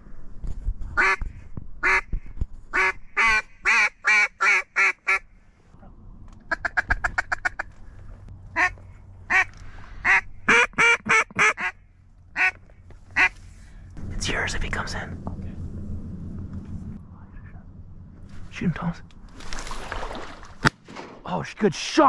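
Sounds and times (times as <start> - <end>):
duck call quacks: 8.6 - 11.8.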